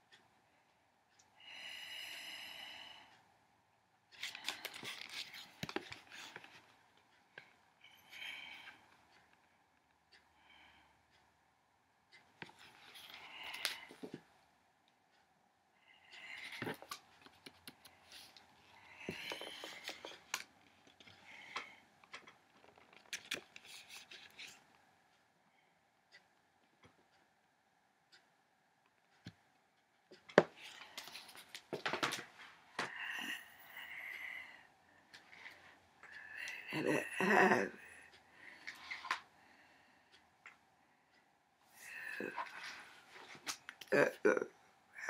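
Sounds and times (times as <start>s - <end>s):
paper book rustling: 4.2s - 6.6s
book pages rustling and turning: 4.2s - 6.8s, 16.4s - 24.6s, 30.3s - 32.4s.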